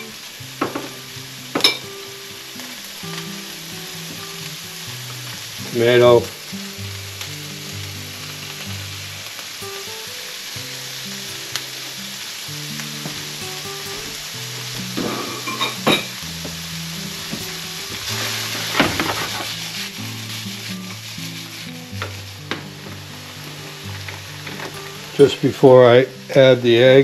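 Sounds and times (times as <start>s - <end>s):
vegetables sizzling in a frying pan: 0.0s - 27.0s
pan shaken on burner: 17.1s - 22.2s.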